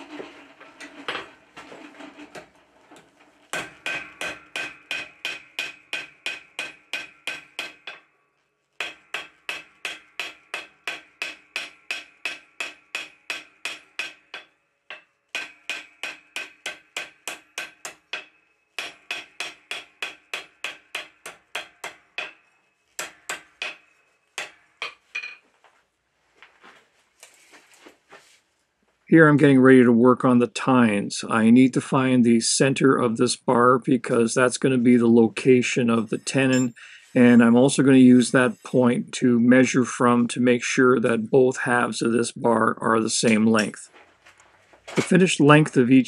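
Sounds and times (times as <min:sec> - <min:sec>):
hammer ringing on anvil: 0:03.5 - 0:08.2, 0:08.8 - 0:25.4, 0:36.2 - 0:36.9.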